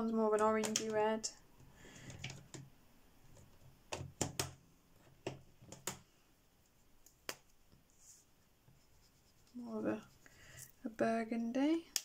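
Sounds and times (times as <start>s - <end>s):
plastic tubes and lids clicking: 0.6s - 1.0s.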